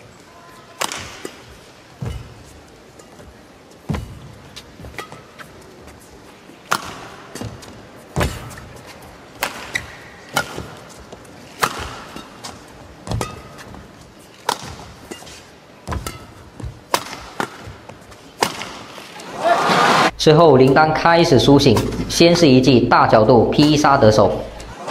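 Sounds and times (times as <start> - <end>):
badminton rackets hitting shuttlecock: 0.6 - 19.2, 20.6 - 24.8.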